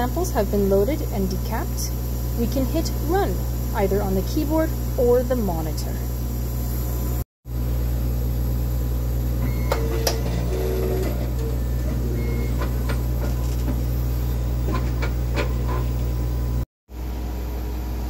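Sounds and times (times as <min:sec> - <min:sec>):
analyzer machine humming: 0:00.0 - 0:18.0
short motor tones: 0:09.3 - 0:16.6.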